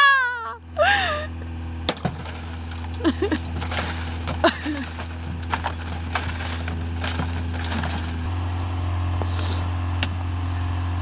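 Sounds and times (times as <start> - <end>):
broken glass clinking and cracking: 1.9 - 8.3.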